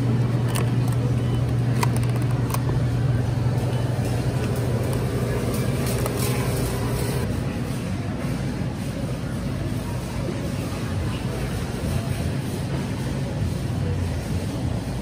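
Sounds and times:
machine humming and rushing: 0:02.9 - 0:07.3.

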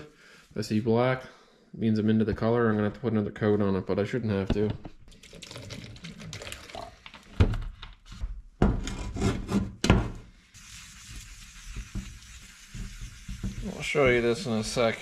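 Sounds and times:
even sanding hiss: 0:10.5 - 0:15.0
sandpaper rubbing strokes: 0:10.6 - 0:15.0
knocks while sanding: 0:11.3 - 0:14.4.

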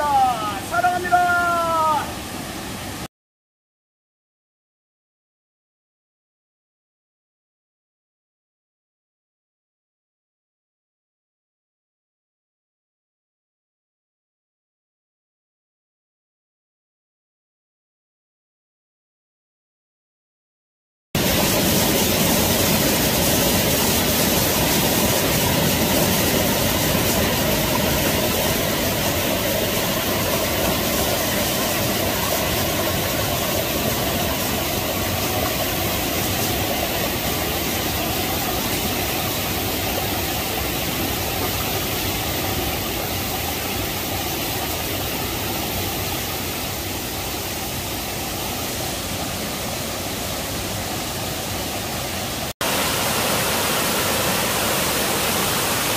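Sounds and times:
stream and waterfall rushing: 0:00.0 - 0:03.1, 0:21.2 - 0:55.9.

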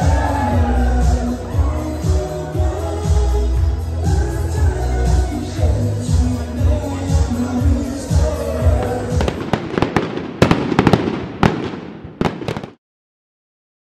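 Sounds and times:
dance music with steady beat: 0:00.0 - 0:09.6
fireworks cracking and banging: 0:08.6 - 0:12.8.

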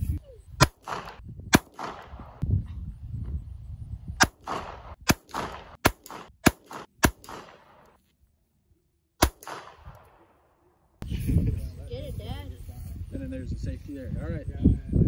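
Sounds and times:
pistol shots with echo: 0:00.6 - 0:02.4, 0:04.2 - 0:07.9, 0:09.2 - 0:10.4.

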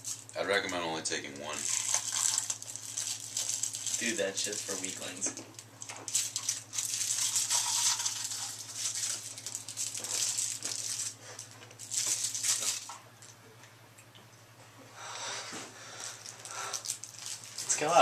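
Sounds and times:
candy tablets rattling: 0:01.5 - 0:05.2, 0:05.8 - 0:12.9, 0:16.2 - 0:18.0
candy crunching as chewed: 0:01.5 - 0:13.4, 0:16.0 - 0:18.0.

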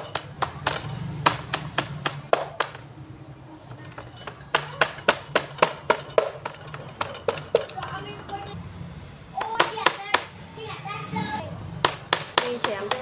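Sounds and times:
meat cleaver chopping on wood: 0:00.0 - 0:02.8, 0:11.8 - 0:13.0.

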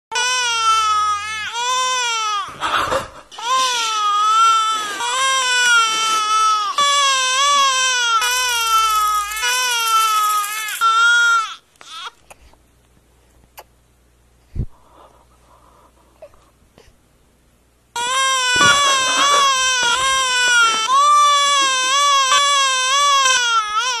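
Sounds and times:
baby crying: 0:00.1 - 0:12.2, 0:18.0 - 0:24.0.

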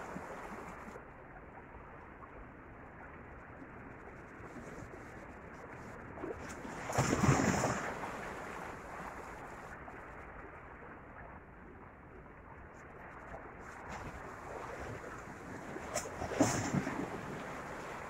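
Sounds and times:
waves breaking among rocks: 0:06.3 - 0:09.2, 0:13.9 - 0:18.0.

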